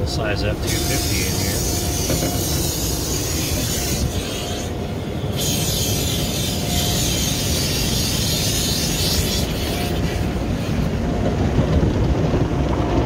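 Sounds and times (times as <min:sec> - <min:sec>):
low rumble of wash machinery: 0:00.0 - 0:13.0
water spray hissing on glass: 0:00.6 - 0:04.7, 0:05.3 - 0:10.9.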